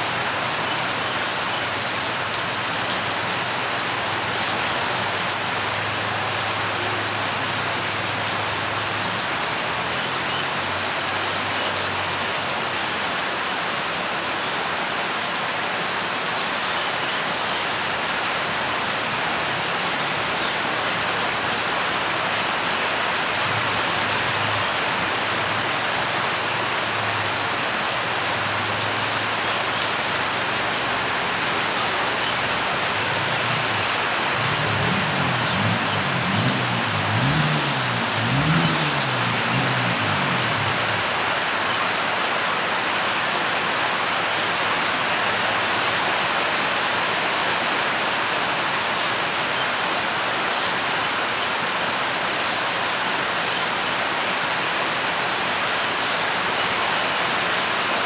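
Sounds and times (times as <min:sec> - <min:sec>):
heavy rain on flooded street: 0:00.0 - 0:58.0
vehicle engine: 0:19.0 - 0:42.5.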